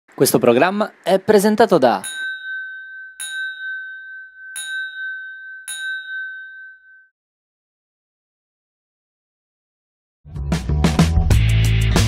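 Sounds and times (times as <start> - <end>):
bell-like chime ringing: 2.0 - 7.1.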